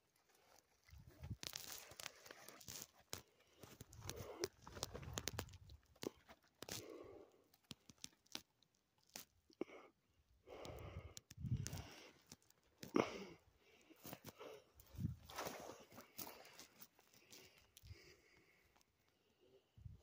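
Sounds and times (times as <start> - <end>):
dry grass crunching and rustling: 0.0 - 6.8, 14.0 - 17.6.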